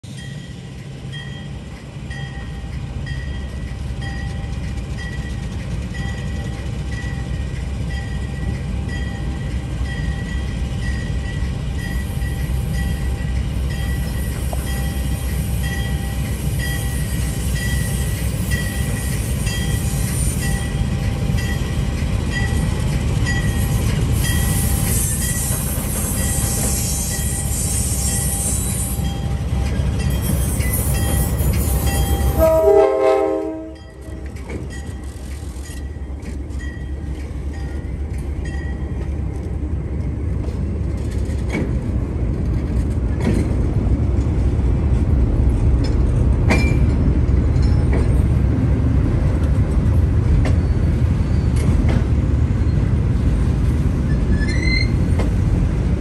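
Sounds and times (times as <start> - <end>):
diesel locomotive engine rumbling: 0.0 - 56.0
train wheels clicking: 0.2 - 32.8, 33.7 - 52.9
train horn blast: 32.3 - 34.2.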